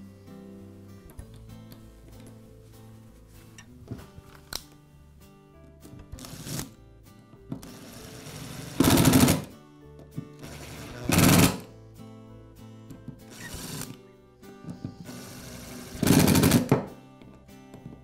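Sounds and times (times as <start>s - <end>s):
background music: 0.0s - 18.0s
cordless drill driving screws: 10.4s - 11.6s, 13.3s - 14.0s, 15.1s - 16.7s.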